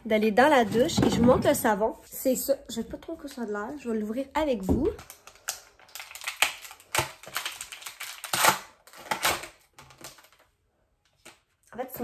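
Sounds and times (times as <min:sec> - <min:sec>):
packaging crinkling: 0:04.9 - 0:10.6.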